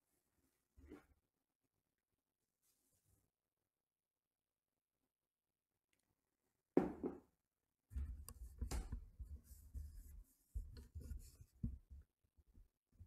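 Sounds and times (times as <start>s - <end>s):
scratchy rubbing and rustling: 8.0s - 12.1s.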